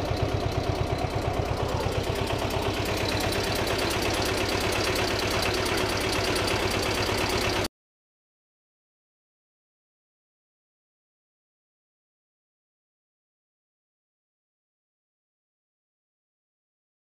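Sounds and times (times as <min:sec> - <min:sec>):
diesel engine knocking: 0:00.0 - 0:07.7.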